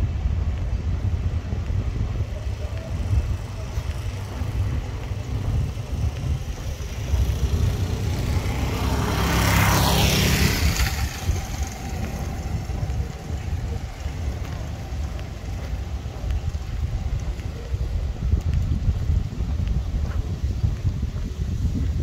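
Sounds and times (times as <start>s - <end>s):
wind buffeting microphone: 0.0s - 22.0s
vehicle passing by: 1.7s - 18.0s.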